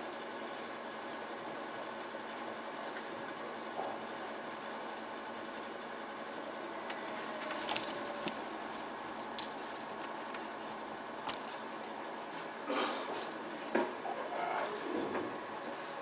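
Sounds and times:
faint clicks and rustles: 0:06.3 - 0:16.0.

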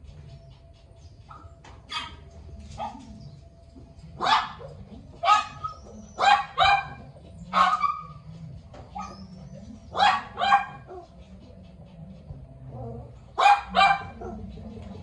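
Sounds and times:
small dog barking: 0:01.3 - 0:02.2, 0:02.8 - 0:03.1, 0:04.2 - 0:08.2, 0:08.9 - 0:09.2, 0:09.9 - 0:11.1, 0:13.4 - 0:14.5.

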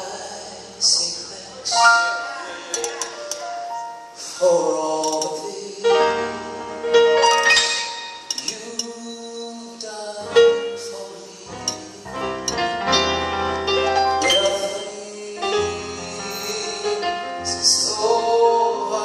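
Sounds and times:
man singing into microphone: 0:00.0 - 0:03.0, 0:04.2 - 0:06.6, 0:08.4 - 0:12.6, 0:14.2 - 0:19.0
piano: 0:00.0 - 0:19.0
bass: 0:10.2 - 0:14.9, 0:15.5 - 0:19.0.

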